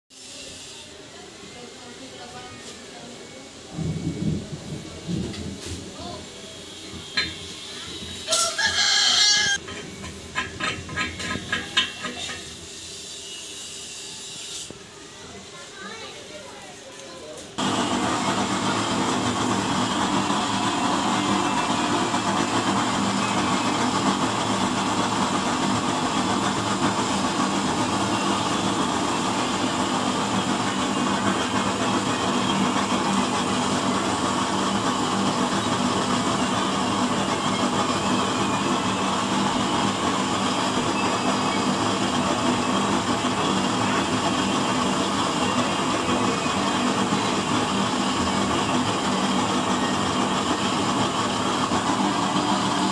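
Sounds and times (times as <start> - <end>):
oil burner flame rushing: 17.5 - 52.9.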